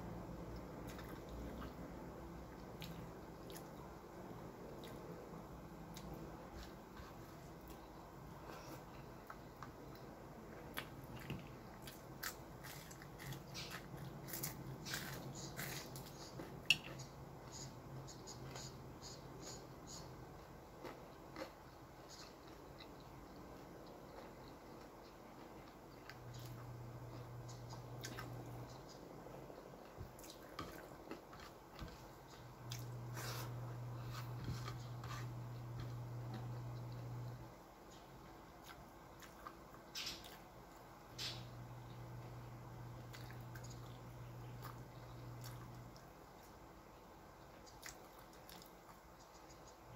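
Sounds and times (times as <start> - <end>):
low steady hum: 0.0 - 49.9
person chewing: 0.5 - 1.9, 2.5 - 3.9, 5.9 - 17.7, 19.5 - 37.4, 38.4 - 41.4, 43.0 - 46.6, 47.4 - 49.8
person chewing crunchy fish: 10.7 - 17.0, 47.6 - 49.4.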